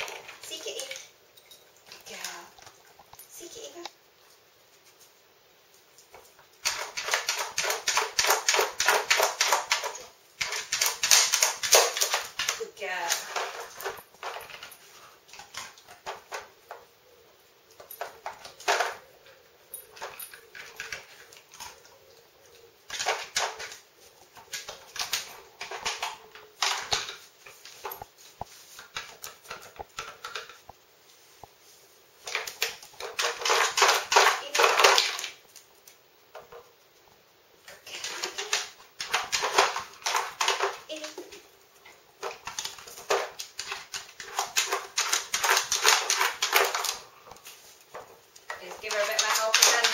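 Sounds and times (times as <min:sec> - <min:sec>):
plastic puzzle toy clattering: 0:06.6 - 0:16.8, 0:17.8 - 0:19.1, 0:22.9 - 0:28.0, 0:32.2 - 0:35.4, 0:37.7 - 0:41.4, 0:42.2 - 0:49.9.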